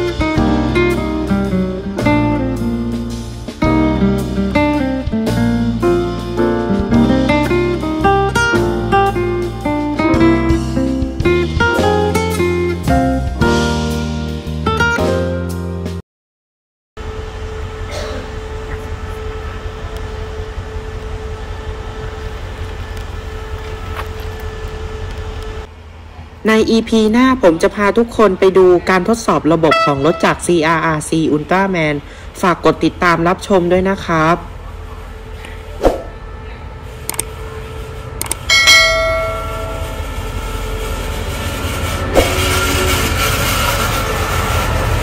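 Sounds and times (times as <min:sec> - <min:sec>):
diesel locomotive engine rumble: 0:00.0 - 0:14.0, 0:17.0 - 0:45.0
constant hum: 0:17.0 - 0:31.0, 0:32.0 - 0:43.4
bell-like metallic ring: 0:38.5 - 0:40.4.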